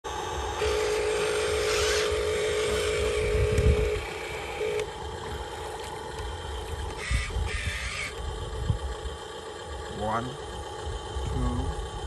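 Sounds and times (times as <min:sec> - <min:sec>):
electric motor whining: 0:00.1 - 0:12.0.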